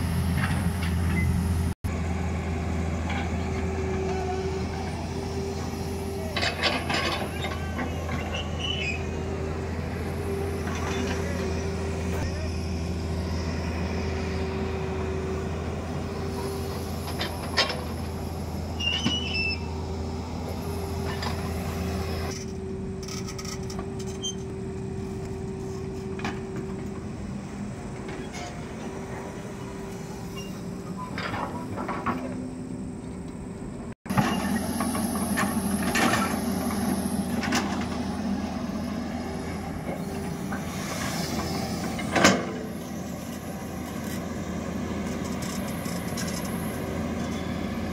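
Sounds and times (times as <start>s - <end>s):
excavator diesel engine running: 0.0s - 47.9s
knocks and squeaks from bucket arm: 6.3s - 9.2s, 18.8s - 19.8s, 22.3s - 24.6s, 28.1s - 29.0s, 29.6s - 32.5s, 34.1s - 37.9s.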